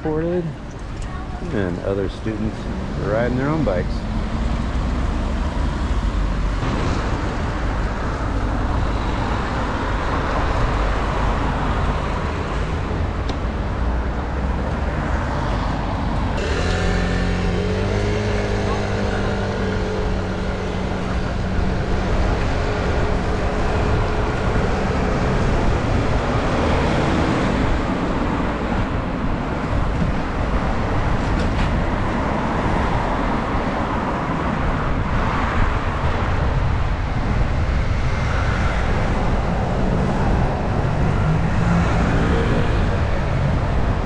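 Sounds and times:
passing motor vehicles: 0.0 - 44.0.

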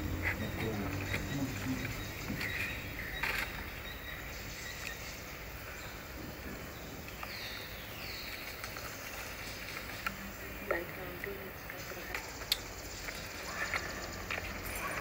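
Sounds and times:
faint bird chirps: 0.0 - 10.6.

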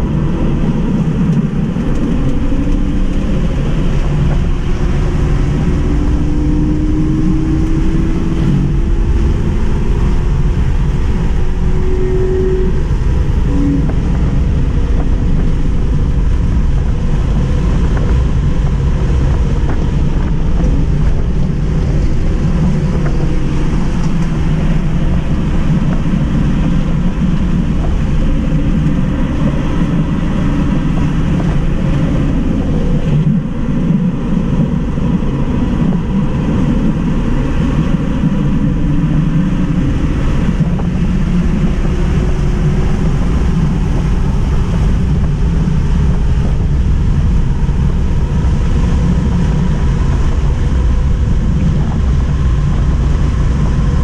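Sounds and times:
road and tyre roar: 0.0 - 54.0
wind noise: 0.0 - 54.0
faint high tone: 11.6 - 14.0.

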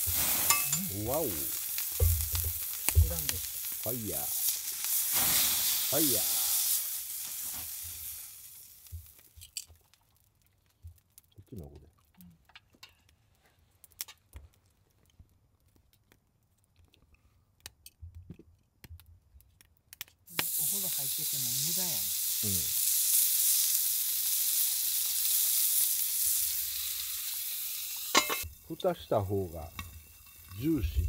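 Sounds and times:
meat sizzling on hot griddle: 0.0 - 9.6, 20.3 - 31.0.

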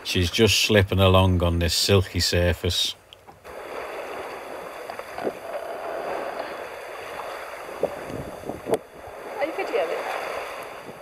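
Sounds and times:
water rushing along hull: 0.0 - 11.0
faint clicks: 3.1 - 3.4.

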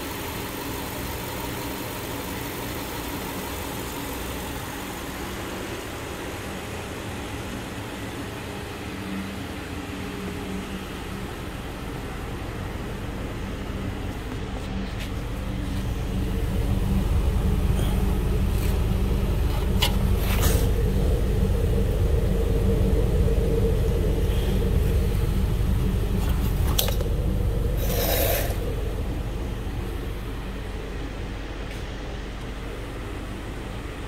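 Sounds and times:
car engine idling: 0.0 - 34.0
hose knocking and scraping: 19.4 - 20.7.

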